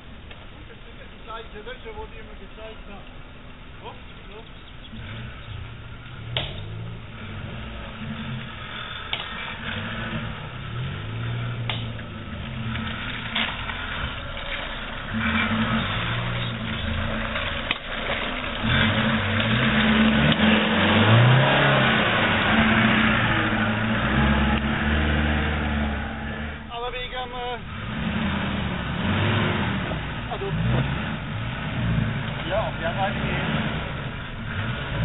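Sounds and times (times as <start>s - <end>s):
off-road vehicle engine revving: 0.0s - 35.0s
sharp knocks: 6.3s - 6.7s.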